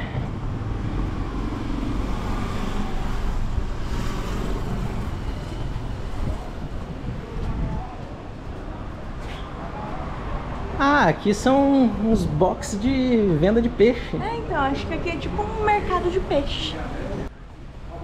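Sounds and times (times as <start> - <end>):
wind rumble on microphone: 0.0 - 9.2
road traffic passing: 0.0 - 18.0.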